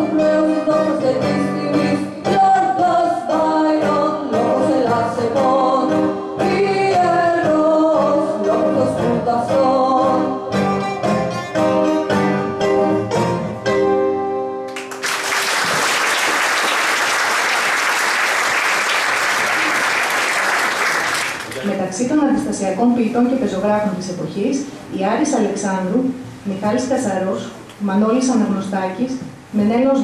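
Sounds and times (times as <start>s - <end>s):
song with instrumental accompaniment: 0.0s - 15.0s
audience applause: 14.7s - 21.7s.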